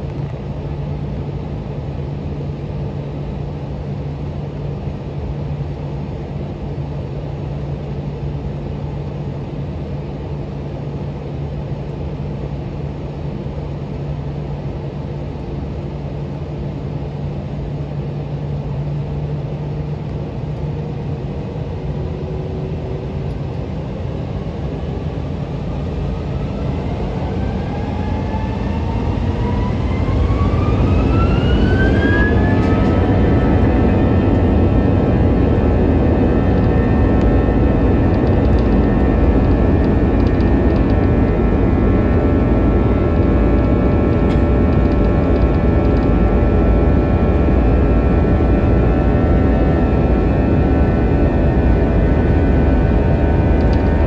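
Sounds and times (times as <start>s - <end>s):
jet engines spooling up: 20.6s - 54.0s.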